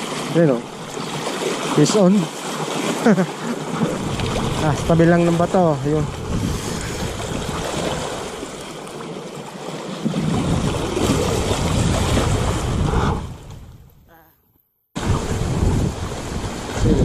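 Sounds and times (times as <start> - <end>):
waves splashing against boulders: 0.0 - 13.7, 15.0 - 17.0
wind buffeting the microphone: 3.7 - 8.6, 10.1 - 14.1, 15.0 - 17.0.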